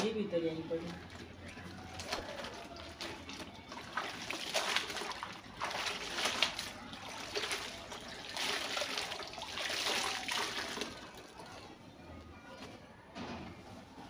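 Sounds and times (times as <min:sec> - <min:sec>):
water splashing in tub: 0:00.7 - 0:11.4.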